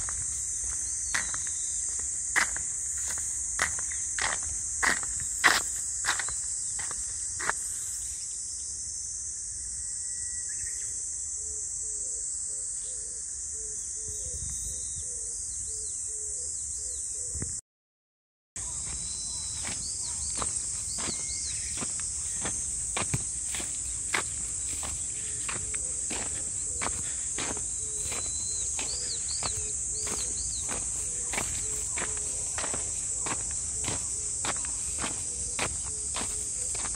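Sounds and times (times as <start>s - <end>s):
footsteps crunching through field: 0.0s - 8.1s, 18.6s - 36.9s
insects chirring: 0.0s - 17.5s, 18.6s - 36.9s.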